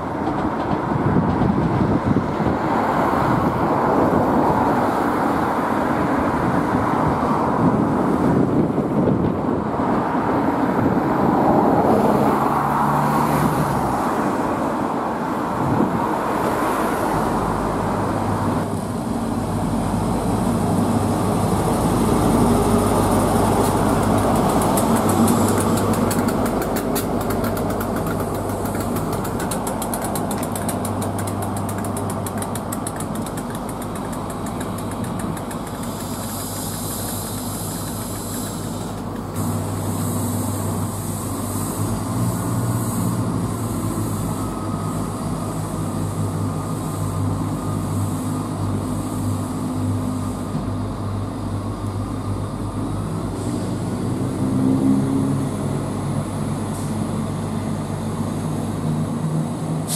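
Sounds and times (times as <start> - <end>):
train wheels rolling: 0.0 - 5.1, 18.1 - 50.6
diesel train engine: 0.0 - 59.9
distant train rumbling: 13.8 - 58.8.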